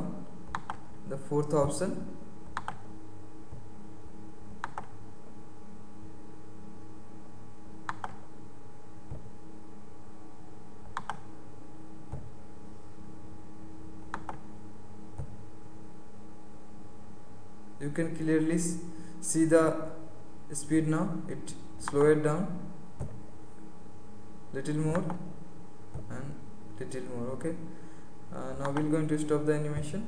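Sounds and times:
steady low hum: 0.0 - 30.0
computer mouse clicks: 0.5 - 0.8, 2.5 - 2.8, 4.6 - 5.0, 7.9 - 8.2, 10.9 - 11.2, 14.1 - 14.4, 28.6 - 28.9.

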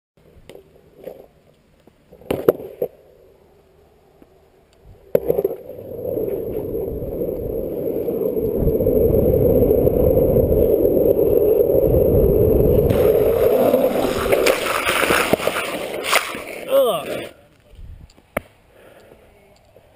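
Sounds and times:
longboard wheels rolling on asphalt: 0.3 - 19.9
wind on microphone: 5.6 - 14.8, 17.7 - 18.1.

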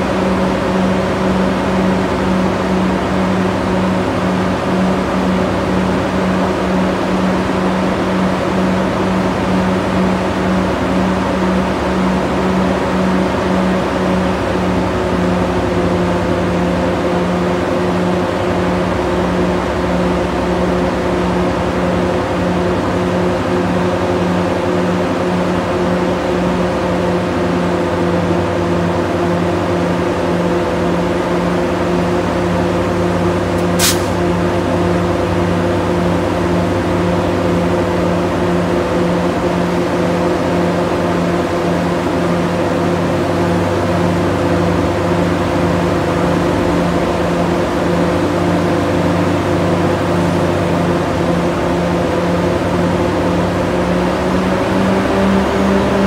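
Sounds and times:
locomotive diesel engine humming: 0.0 - 56.0
sharp click: 33.6 - 34.2.

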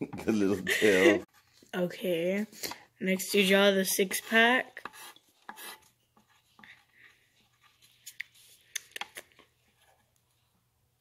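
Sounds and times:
pencil scratching on paper: 3.3 - 8.5.

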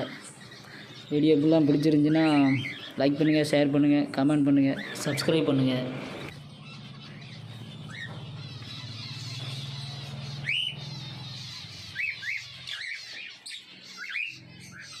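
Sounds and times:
lovebirds twittering: 0.0 - 15.0
sharp bird chirps: 6.0 - 15.0.

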